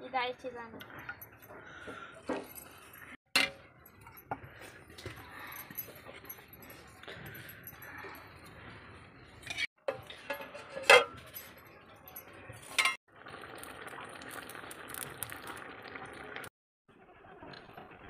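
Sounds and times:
metal lid and ladle clanking: 3.4s - 3.7s, 9.4s - 11.6s, 12.6s - 13.0s.

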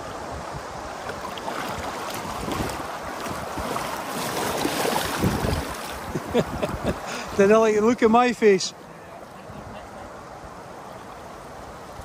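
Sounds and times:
wind buffeting microphone: 0.0s - 7.8s
river water flowing: 0.0s - 12.0s
net splashing in water: 1.1s - 6.0s.

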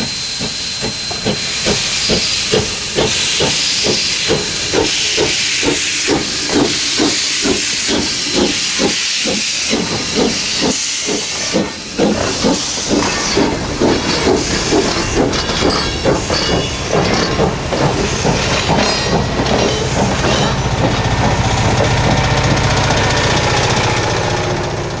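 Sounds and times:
steam hiss: 0.0s - 24.1s
railway cars rumbling and clattering: 0.0s - 25.0s
steam locomotive chuffing: 0.0s - 25.0s.

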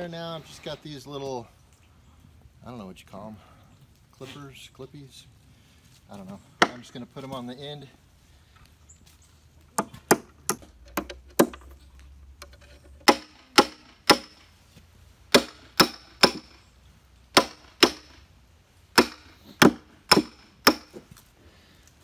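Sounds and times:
hatchet striking metal: 13.0s - 14.4s, 15.3s - 16.6s, 17.4s - 18.2s, 19.0s - 21.0s.

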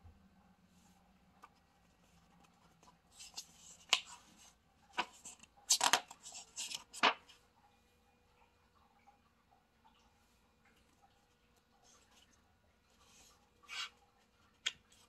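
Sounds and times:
paper pages rustling: 2.0s - 7.3s.

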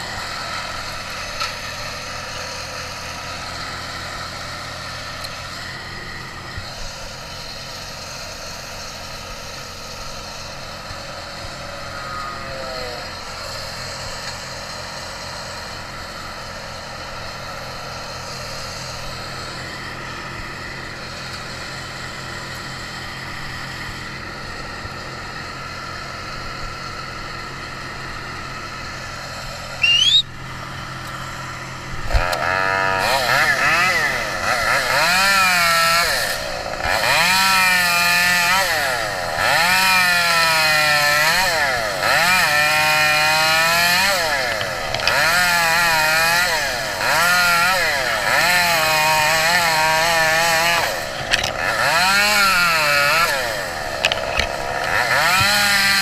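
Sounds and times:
engine idling: 0.0s - 56.0s
loud rising whine: 29.1s - 32.9s.

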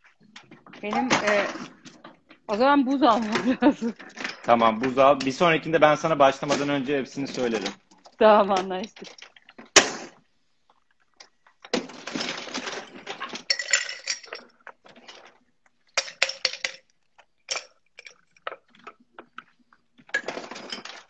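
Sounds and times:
ice cubes clattering: 3.2s - 9.7s, 11.7s - 19.4s, 20.0s - 21.0s.

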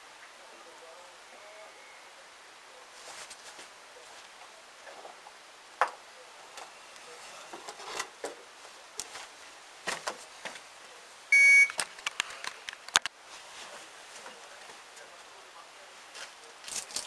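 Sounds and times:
electronic beep: 11.3s - 11.8s.

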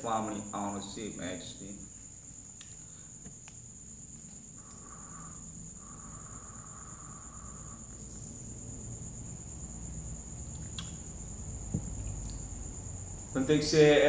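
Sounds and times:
airy vape hiss: 1.9s - 12.5s.

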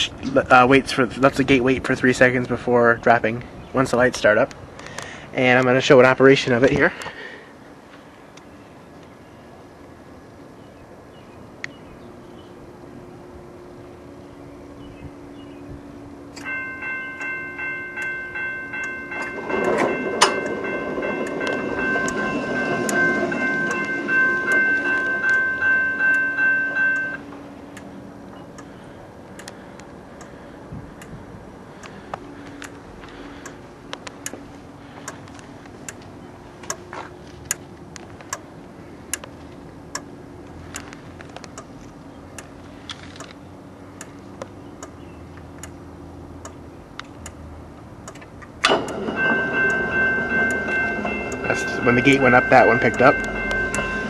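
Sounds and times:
railroad crossing bell ringing: 16.0s - 28.9s, 48.6s - 54.0s.

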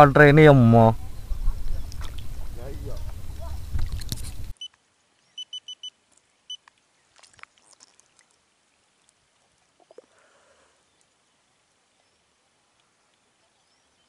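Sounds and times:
wind rumbling on microphone: 0.0s - 4.5s
short high-pitched beeps: 5.4s - 5.9s.

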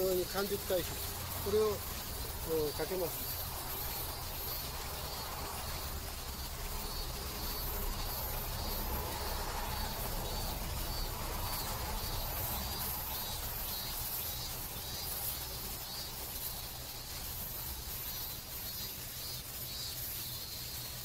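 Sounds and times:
insects chirping: 0.0s - 21.0s.

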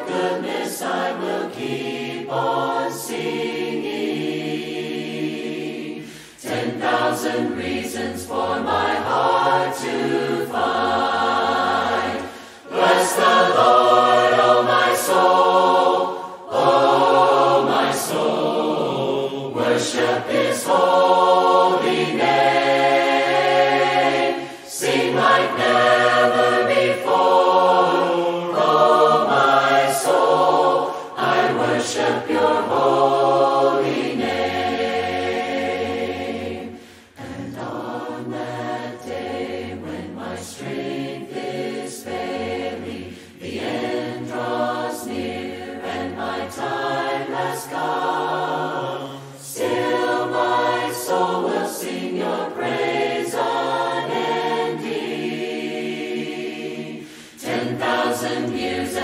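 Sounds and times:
choir singing a hymn: 0.0s - 59.0s.

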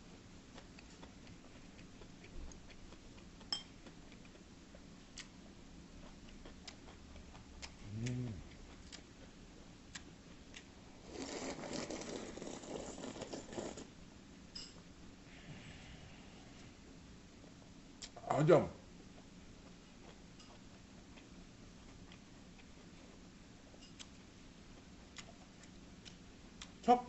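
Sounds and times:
person humming: 7.8s - 8.6s
loud slurping soup: 11.0s - 13.9s.

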